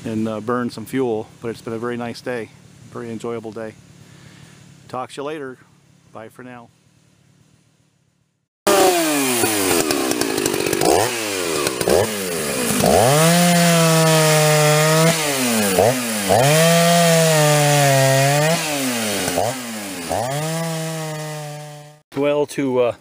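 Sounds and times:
chainsaw cutting at full throttle: 8.7 - 22.0.

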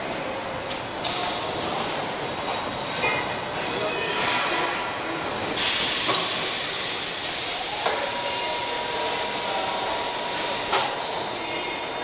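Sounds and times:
machinery hiss: 5.0 - 11.7
steady machine tone: 6.5 - 12.0.

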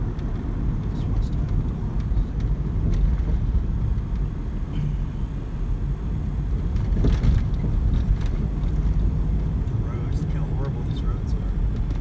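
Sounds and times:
car road and engine rumble: 0.0 - 12.0.

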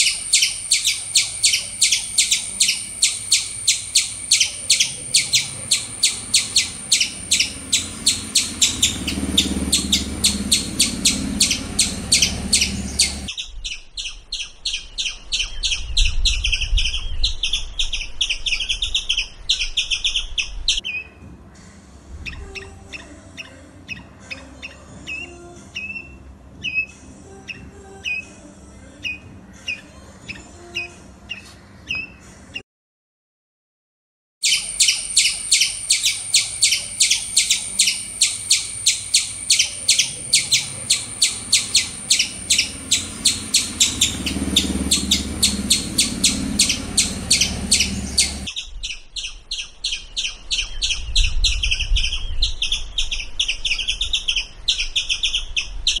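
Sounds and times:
squirrel alarm chirps: 0.0 - 14.2, 34.4 - 51.0.

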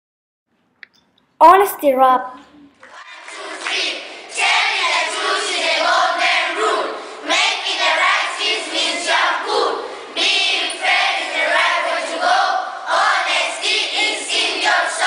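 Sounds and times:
children rapping in unison: 1.5 - 15.0.

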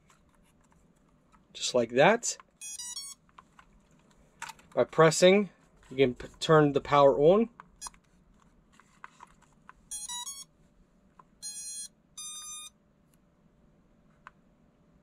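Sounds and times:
electronic beeps: 11.4 - 12.7.

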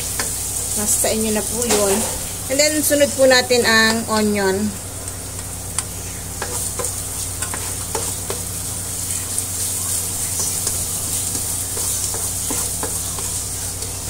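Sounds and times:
aromatics sizzling in oil: 0.0 - 14.0
spatula scraping and tapping pan: 5.0 - 8.5, 10.2 - 14.0.

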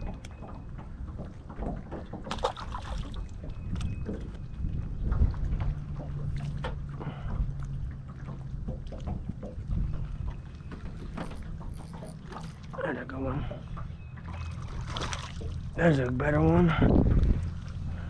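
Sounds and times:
wind rumble on microphone: 0.0 - 12.6, 13.7 - 18.0
water lapping around boat: 0.0 - 18.0
clicks and splashes: 2.2 - 3.9, 14.3 - 15.6.

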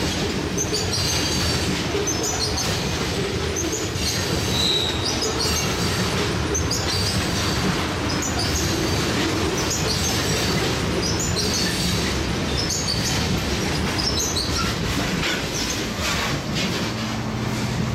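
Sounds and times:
train wheels rumbling on track: 0.0 - 17.9
high wheel squeals: 3.6 - 16.4.

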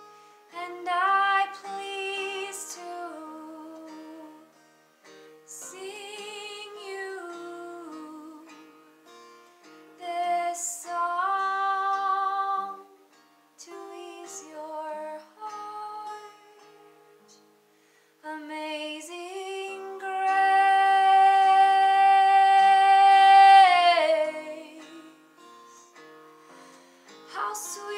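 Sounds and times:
acoustic guitar: 0.0 - 27.9
woman singing: 0.5 - 4.6, 5.5 - 8.8, 10.0 - 17.0, 18.2 - 25.3, 27.3 - 27.9.

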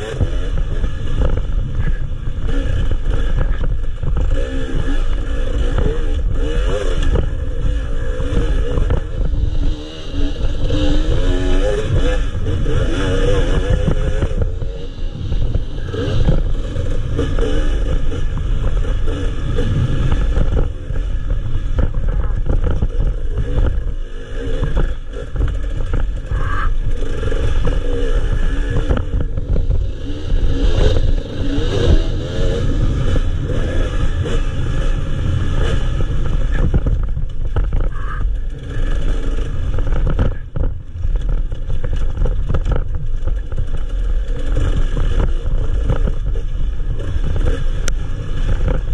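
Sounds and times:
motorcycle clattering and scraping: 0.0 - 48.9
motorcycle engine revving: 0.0 - 48.9.

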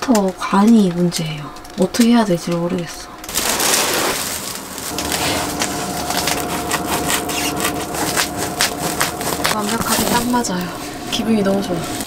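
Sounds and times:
faint steady hum: 1.0 - 12.0
foil insulation sheet crinkling: 3.3 - 12.0.

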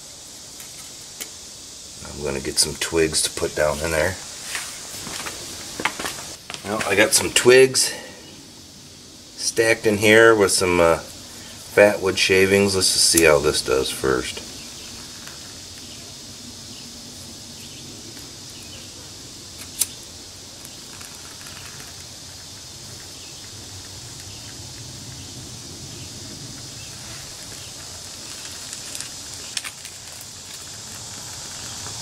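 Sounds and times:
kindling fire crackling: 0.0 - 32.0
steady background hiss: 0.0 - 32.0
crackling pops: 13.1 - 13.4, 19.6 - 25.3, 26.5 - 32.0
wood snapping: 26.9 - 32.0.

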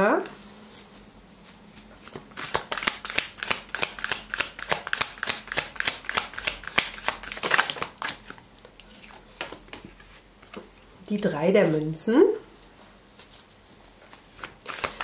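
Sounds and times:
cards being shuffled: 2.0 - 10.7, 14.1 - 15.0.

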